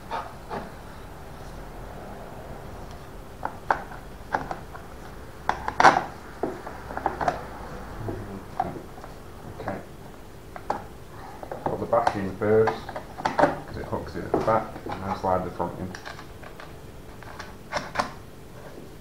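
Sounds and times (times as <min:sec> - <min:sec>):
plastic and metal parts clicking: 0:15.8 - 0:18.1.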